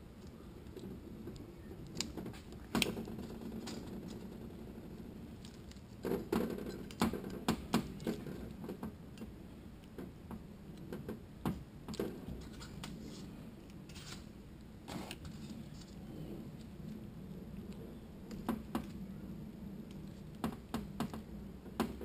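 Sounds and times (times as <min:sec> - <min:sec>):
soft rustles: 0:12.0 - 0:18.3.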